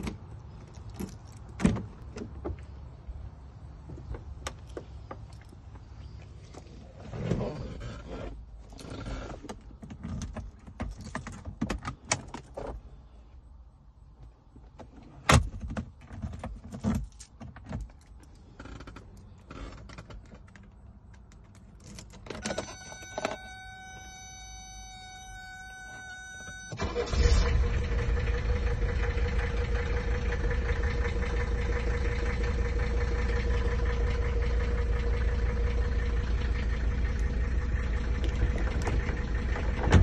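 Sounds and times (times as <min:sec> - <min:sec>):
keys rattling in ignition: 0:00.0 - 0:02.1, 0:15.5 - 0:24.5.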